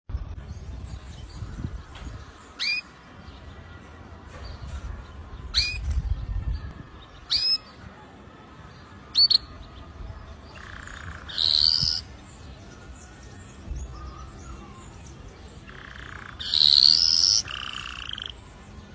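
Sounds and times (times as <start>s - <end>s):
canary chirping: 2.5s - 3.5s, 10.6s - 13.2s, 15.6s - 18.5s.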